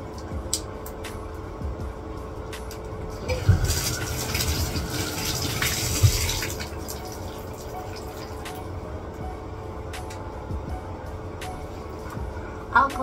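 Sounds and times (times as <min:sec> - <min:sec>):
faucet filling plastic bottle: 0:03.2 - 0:08.5.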